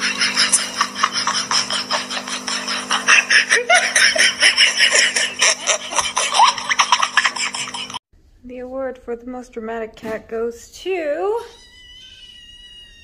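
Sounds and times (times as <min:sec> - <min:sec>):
person laughing hard: 0:00.0 - 0:08.0.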